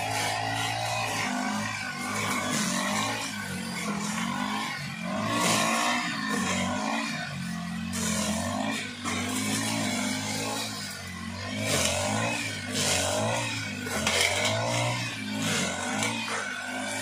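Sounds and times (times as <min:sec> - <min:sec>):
brush cutter engines revving: 0:00.0 - 0:17.0
cutting heads hissing through grass: 0:00.0 - 0:17.0.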